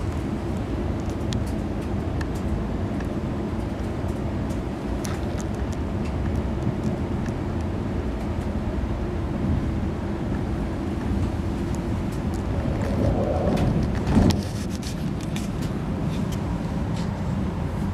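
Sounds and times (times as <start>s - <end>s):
train cabin low rumble: 0.0s - 17.9s
faint light ticks: 0.1s - 8.6s.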